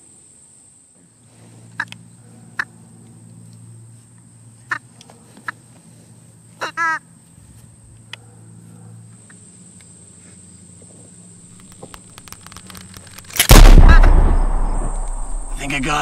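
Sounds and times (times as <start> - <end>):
loud rifle shot: 13.4 - 16.0.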